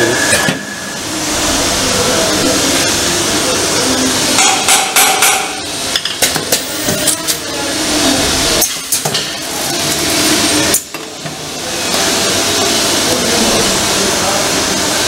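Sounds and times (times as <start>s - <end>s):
sealing machine hissing: 6.5s - 10.9s.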